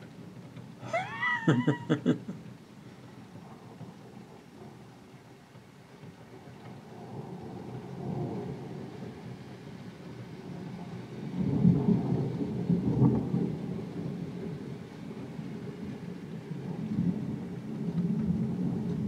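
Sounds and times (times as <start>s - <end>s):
steady heavy rain: 0.0s - 19.0s
rolling thunder: 6.1s - 19.0s.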